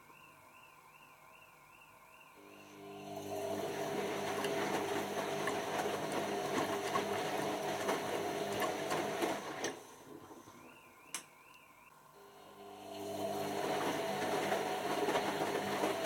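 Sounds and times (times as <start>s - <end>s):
washing machine motor humming: 2.4s - 10.3s, 12.2s - 16.0s
wet laundry tumbling and sloshing: 3.1s - 10.3s, 13.0s - 16.0s.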